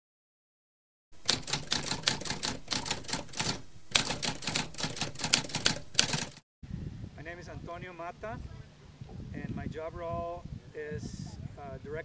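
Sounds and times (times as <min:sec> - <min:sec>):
typewriter keys clacking: 0:01.2 - 0:06.4.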